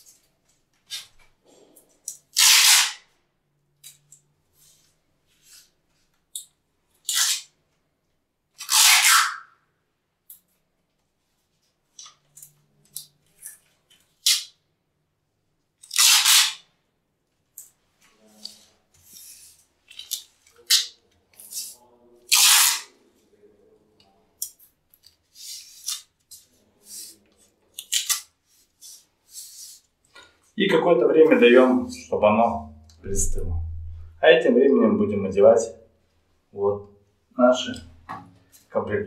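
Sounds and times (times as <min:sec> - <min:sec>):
masking tape ripping: 0:02.3 - 0:03.1, 0:07.0 - 0:07.5, 0:08.6 - 0:09.5, 0:14.2 - 0:14.5, 0:15.8 - 0:16.6, 0:20.0 - 0:23.0, 0:27.8 - 0:28.3.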